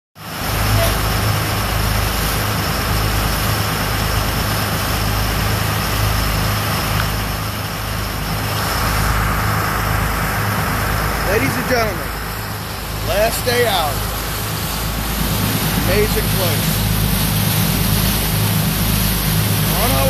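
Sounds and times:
boat engine drone: 0.2 - 20.0
water rushing along hull: 0.2 - 20.0
wind hiss: 0.3 - 20.0.

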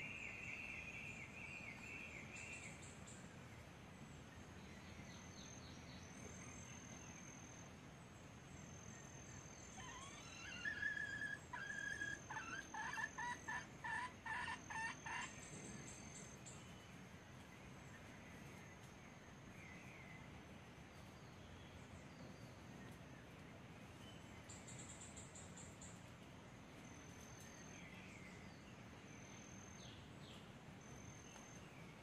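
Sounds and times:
junglefowl calling: 9.7 - 15.4.

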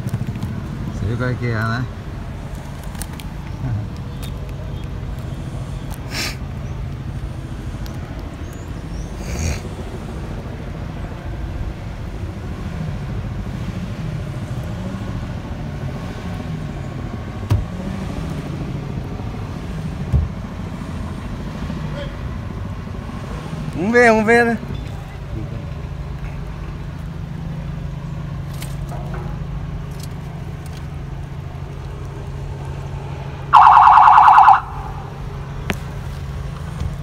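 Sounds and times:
short hissing noises: 5.4 - 6.5
car engine idling: 16.5 - 37.0.

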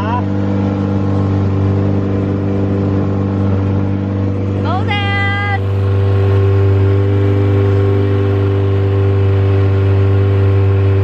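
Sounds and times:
outboard motor running: 0.0 - 11.0.

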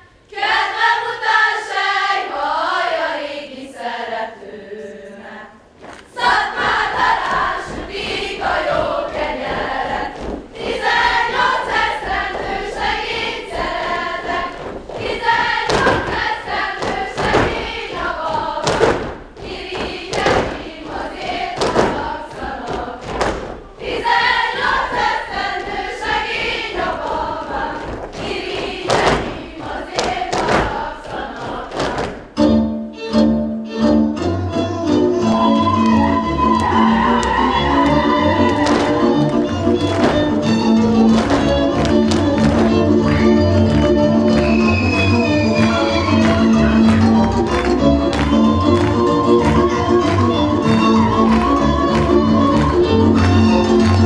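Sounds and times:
girls singing unaccompanied: 0.0 - 32.3, 35.2 - 54.0
feet stamping on stage floor: 5.8 - 32.4, 35.4 - 54.0
band with fiddle playing: 32.4 - 54.0.

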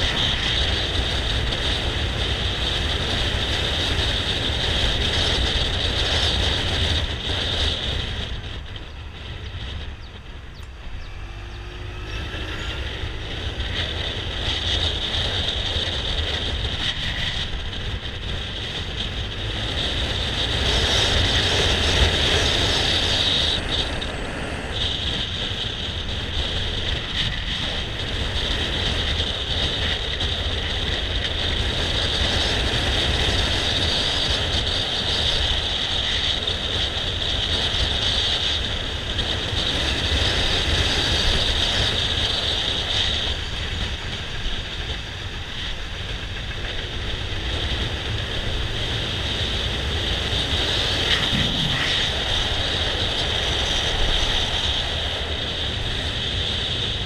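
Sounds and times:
scooter motor running: 0.0 - 57.0
wind and road noise: 0.0 - 57.0
faint rising whine: 8.1 - 15.6.

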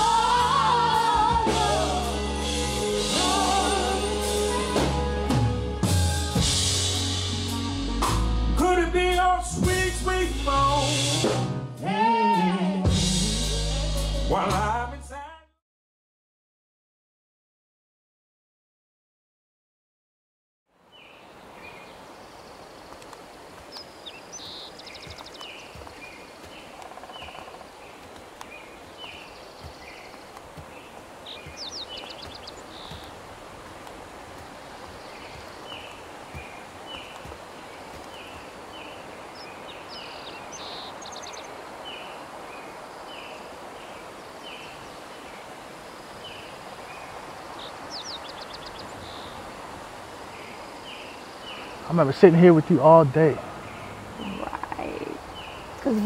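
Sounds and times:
birds chirping: 20.8 - 56.0
steady rushing hiss: 21.2 - 56.0.

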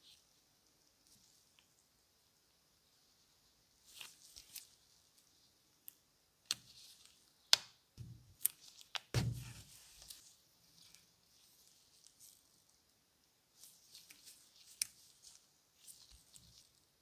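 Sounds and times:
gloved fingers rustling leather: 13.6 - 16.8.

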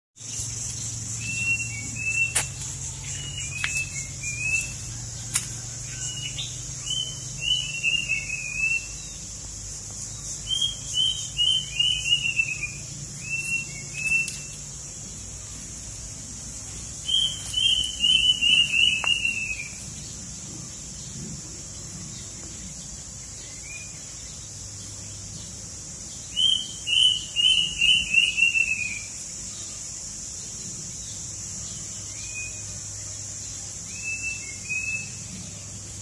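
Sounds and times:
high-pitched insect drone: 0.2 - 36.0
songbird whistling: 1.1 - 5.1, 5.9 - 9.2, 10.4 - 14.6, 17.0 - 19.8, 26.3 - 29.2, 33.9 - 35.3.

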